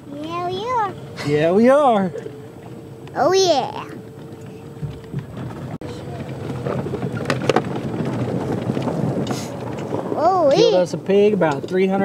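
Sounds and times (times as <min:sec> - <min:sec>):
utility vehicle engine: 0:00.0 - 0:12.0
knocks and clatters: 0:04.1 - 0:10.2
wind noise: 0:04.7 - 0:12.0.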